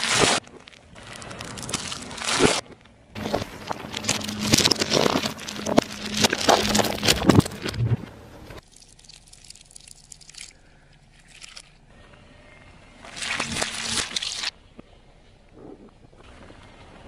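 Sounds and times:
glass balls crackling and popping: 0:00.0 - 0:11.8, 0:13.1 - 0:14.5
plastic crackling under a tyre: 0:00.0 - 0:11.8, 0:13.0 - 0:14.9.

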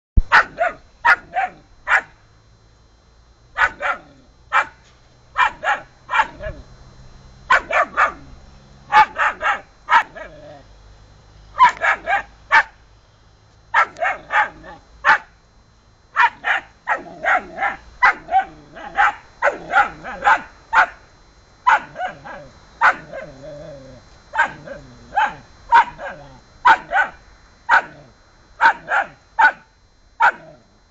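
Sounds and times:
puppy barking and yipping: 0:00.3 - 0:02.1, 0:03.6 - 0:04.8, 0:05.4 - 0:06.6, 0:07.5 - 0:08.3, 0:08.9 - 0:10.4, 0:11.6 - 0:12.8, 0:13.8 - 0:15.3, 0:16.2 - 0:21.0, 0:21.7 - 0:23.4, 0:24.4 - 0:28.0, 0:28.6 - 0:29.6, 0:30.2 - 0:30.5.

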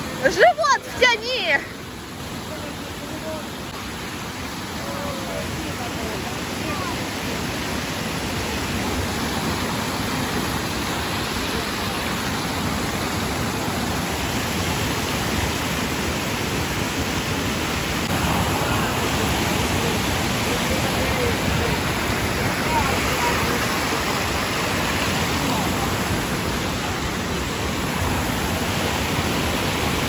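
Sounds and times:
small waterfall hissing: 0:00.0 - 0:30.0
water rushing over rocks: 0:00.0 - 0:30.0.

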